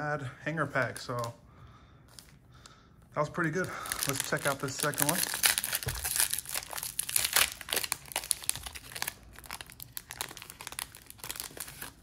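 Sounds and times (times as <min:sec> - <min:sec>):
foil wrapper tearing and crinkling: 0:03.8 - 0:12.0.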